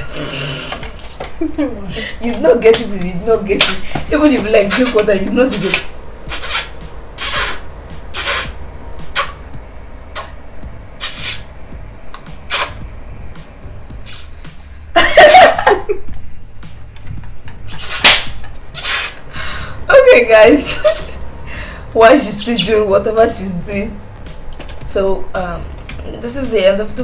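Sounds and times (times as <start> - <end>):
woman making hissing mouth sounds: 5.5 - 9.4, 10.1 - 10.4, 11.0 - 11.5, 12.4 - 12.8, 14.0 - 14.4, 17.7 - 19.2.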